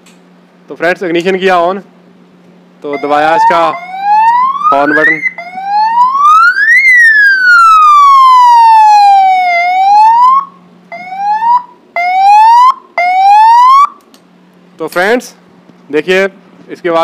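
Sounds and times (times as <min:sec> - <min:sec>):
electronic police siren wailing: 0:02.9 - 0:14.0
short rising siren whoops: 0:02.9 - 0:14.0.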